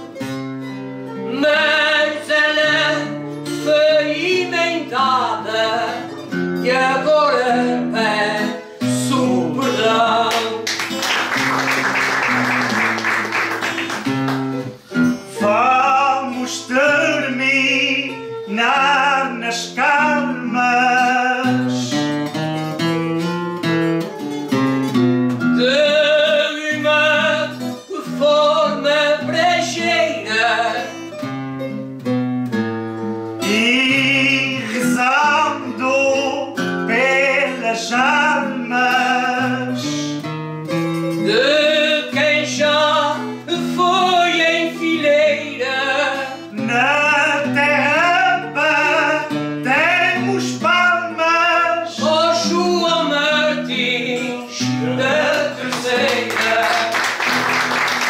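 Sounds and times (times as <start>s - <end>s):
guitar plucked and strummed: 0.0s - 58.0s
person singing with vibrato: 1.2s - 11.0s, 14.7s - 22.2s, 25.5s - 31.3s, 33.4s - 40.3s, 41.1s - 57.4s.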